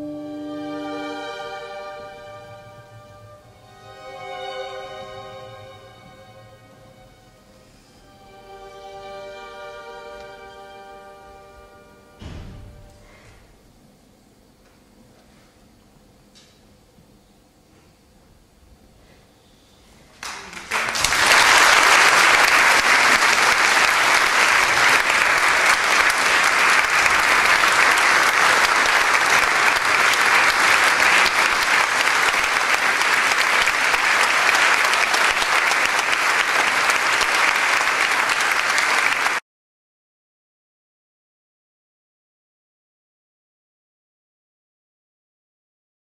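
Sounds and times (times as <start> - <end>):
audience applauding: 20.2 - 39.4.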